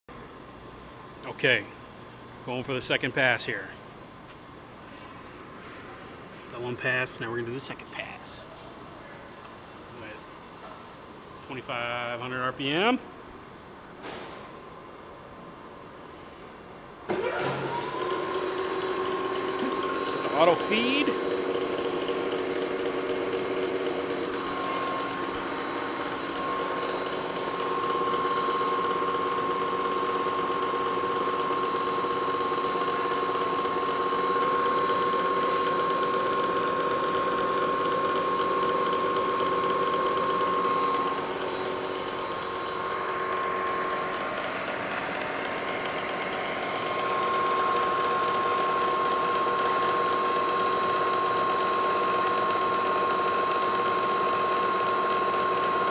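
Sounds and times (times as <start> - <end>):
milling machine hum: 16.6 - 55.9
high whine of cutting: 16.9 - 55.9.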